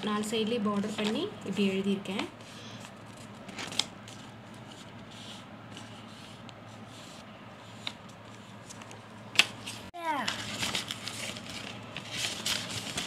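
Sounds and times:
paper rustling: 2.8 - 13.0.

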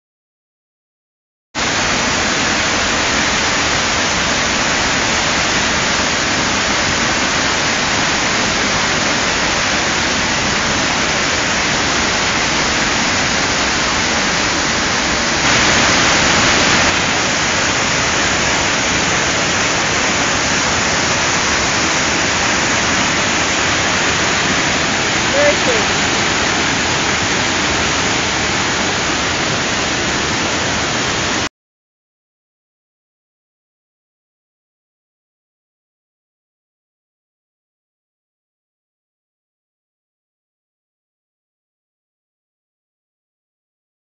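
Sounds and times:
waterfall rushing over rocks: 1.6 - 31.5.

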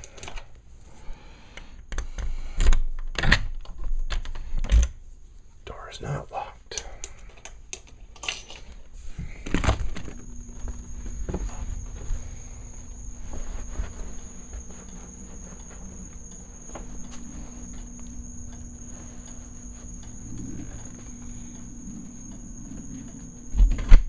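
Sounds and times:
low steady hum: 4.8 - 24.0
night insects droning: 5.7 - 24.0
faint footsteps outdoors: 9.2 - 23.6.

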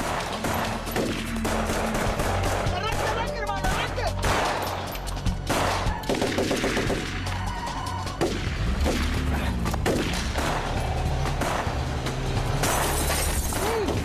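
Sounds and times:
handgun shots: 3.7 - 7.1.

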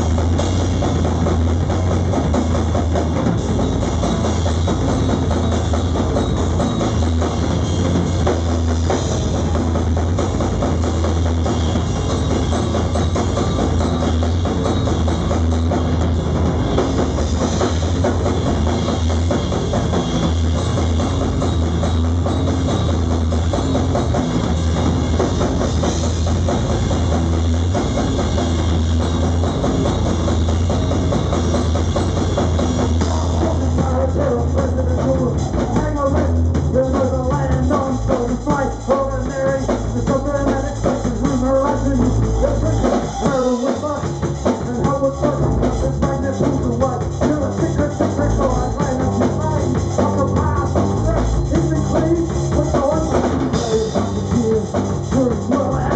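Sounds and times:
drum kit: 0.0 - 55.9
electric guitar: 0.0 - 55.9
person singing: 33.0 - 55.9.

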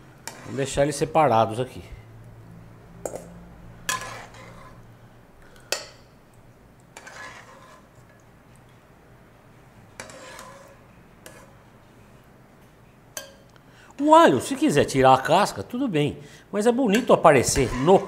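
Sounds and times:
skimmer scraping: 0.2 - 1.0, 3.8 - 4.8, 6.9 - 8.2, 10.0 - 11.6, 17.4 - 18.0.

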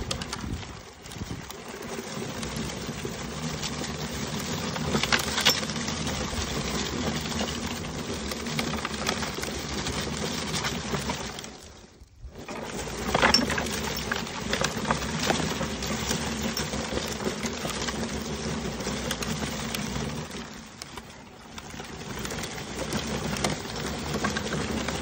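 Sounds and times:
brush roller whirring: 0.0 - 25.0.

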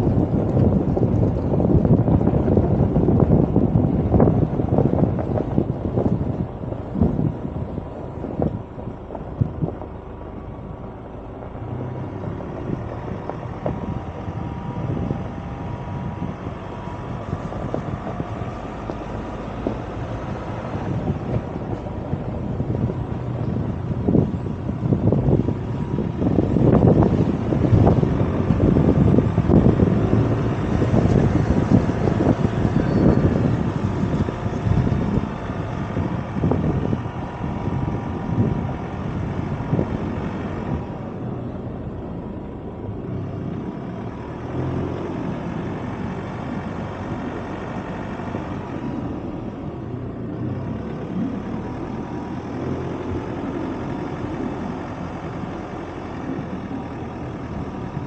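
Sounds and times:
pickup engine running: 0.0 - 58.0
tyres crunching over dirt: 11.5 - 40.9.

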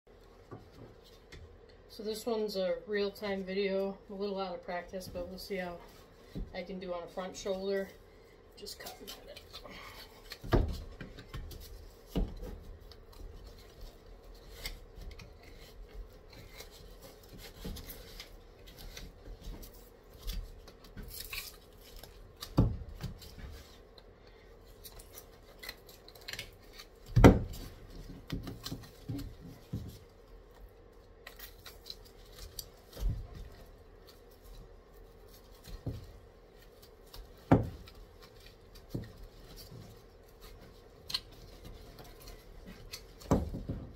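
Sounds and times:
faint steady hum: 0.1 - 43.9
knife cutting and scraping bone: 8.8 - 34.8.

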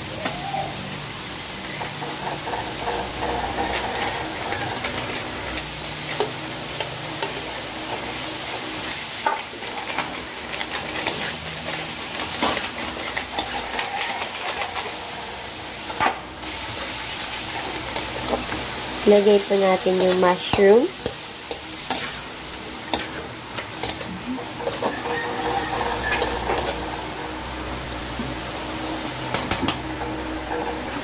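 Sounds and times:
vegetables sizzling in a wok: 0.0 - 31.0
spatula scraping a pan: 9.2 - 15.4, 20.0 - 27.5.

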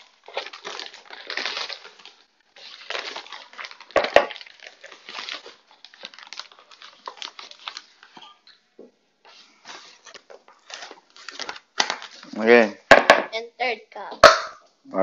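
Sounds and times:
flour bag crinkling: 0.0 - 8.2, 9.4 - 12.4.

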